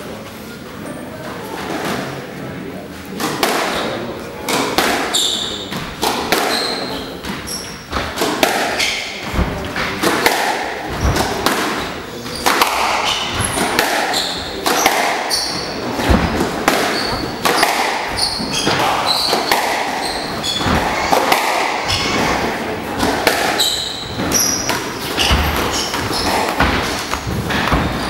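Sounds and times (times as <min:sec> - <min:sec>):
ball smacking walls: 0:03.2 - 0:28.0
squash ball struck by rackets: 0:03.2 - 0:28.0
shoes squeaking on court floor: 0:03.7 - 0:10.0, 0:10.8 - 0:28.0
deep thuds: 0:09.2 - 0:10.0.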